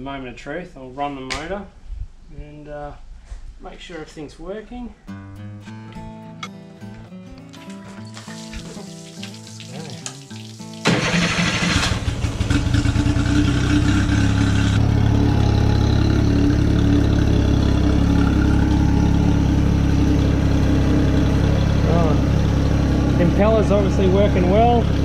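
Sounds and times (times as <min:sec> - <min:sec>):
acoustic guitar music: 0:05.0 - 0:11.2
water splashing: 0:07.4 - 0:12.4
outboard engine idling: 0:10.8 - 0:25.0.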